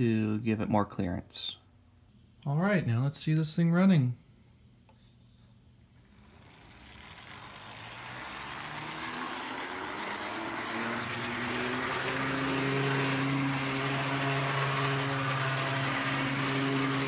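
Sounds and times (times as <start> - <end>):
model train motor humming: 6.0 - 17.0.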